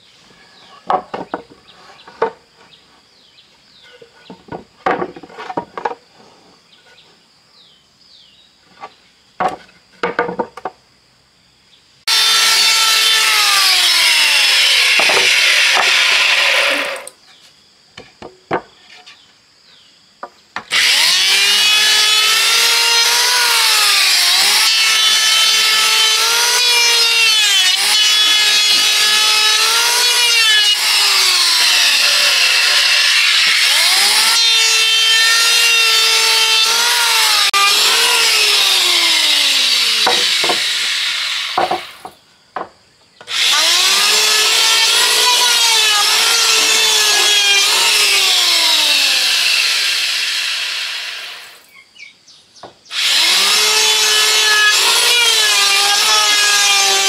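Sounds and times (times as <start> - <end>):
power tool cutting wood: 12.1 - 17.2, 20.7 - 42.1, 43.3 - 51.6, 52.9 - 57.0.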